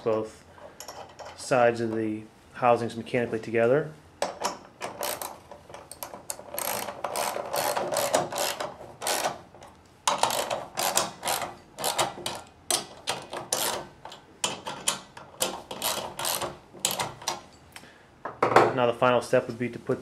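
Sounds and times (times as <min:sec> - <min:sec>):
ratchet wrench clicking: 0:04.2 - 0:09.4, 0:10.1 - 0:17.4.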